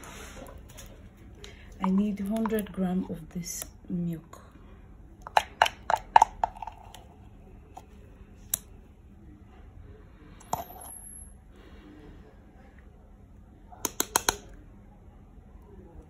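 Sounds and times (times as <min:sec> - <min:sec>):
soft handling noise: 0:00.0 - 0:03.2.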